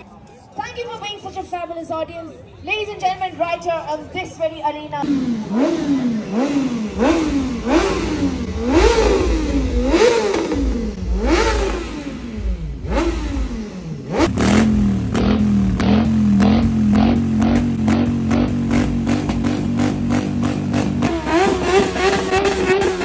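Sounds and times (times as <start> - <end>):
motorcycle engine revving: 5.0 - 23.0.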